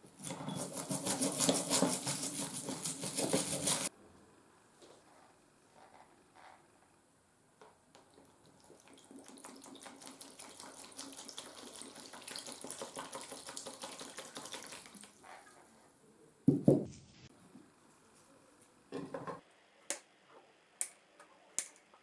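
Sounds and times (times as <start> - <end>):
liquid pouring and splashing: 8.0 - 15.2.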